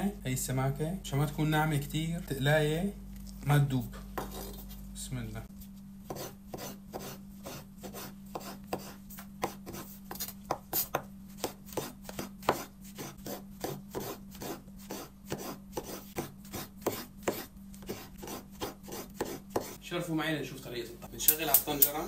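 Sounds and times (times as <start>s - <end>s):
faint low hum: 0.0s - 10.5s
knife chopping on cutting board: 6.1s - 19.8s.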